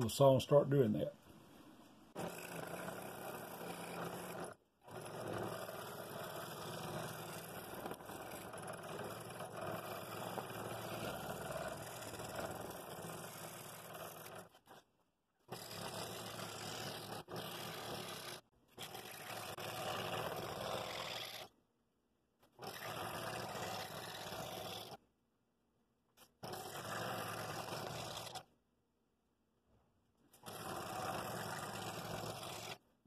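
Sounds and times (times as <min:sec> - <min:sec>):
scroll saw cutting wood: 0:02.1 - 0:21.6, 0:22.4 - 0:25.0, 0:26.2 - 0:28.5, 0:30.3 - 0:32.9.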